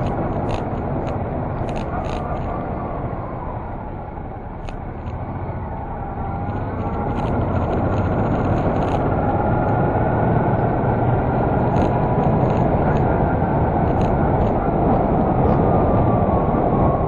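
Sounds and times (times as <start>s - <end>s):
wind on microphone: 0.0s - 17.0s
motorcycle engine accelerating: 4.6s - 15.4s.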